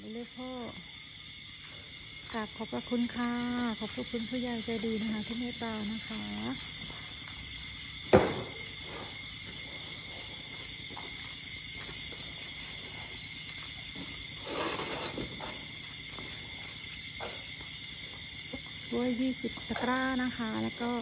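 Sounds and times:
night insects chirring: 0.0 - 21.0
sharp thump: 8.1 - 8.6.

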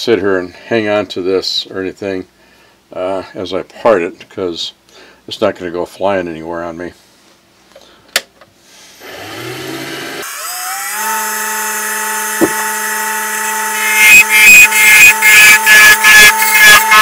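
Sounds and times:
lathe motor whining and humming: 9.0 - 17.0
tool scraping spinning wood: 12.3 - 13.0.

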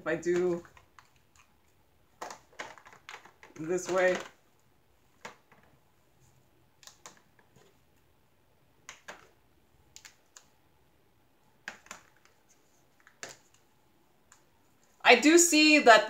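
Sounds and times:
plastic containers clicking: 2.2 - 4.4, 8.8 - 10.4, 11.6 - 12.4.

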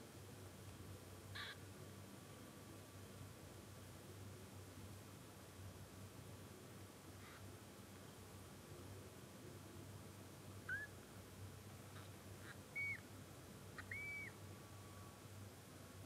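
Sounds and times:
kitten mewing: 1.4 - 1.6.

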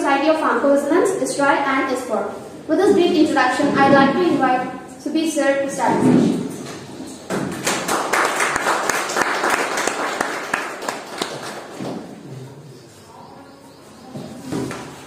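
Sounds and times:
audience applauding: 7.5 - 11.8.

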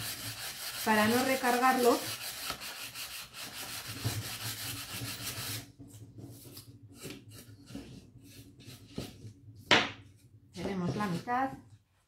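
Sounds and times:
hand-sanding wood: 0.0 - 5.6.

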